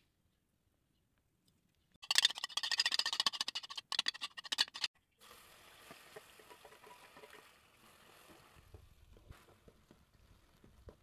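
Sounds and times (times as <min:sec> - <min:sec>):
potato sizzling in hot oil: 0:05.2 - 0:10.9.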